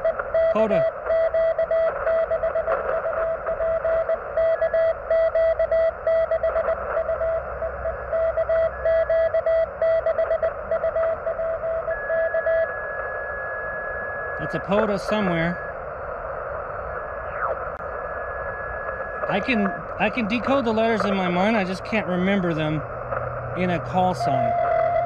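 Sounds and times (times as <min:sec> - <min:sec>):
morse code tone: 0:00.0 - 0:15.7, 0:19.2 - 0:22.8, 0:23.6 - 0:25.0
faint high-pitched morse signal: 0:00.0 - 0:15.8, 0:16.5 - 0:25.0
radio band hiss: 0:00.5 - 0:01.1, 0:11.9 - 0:25.0.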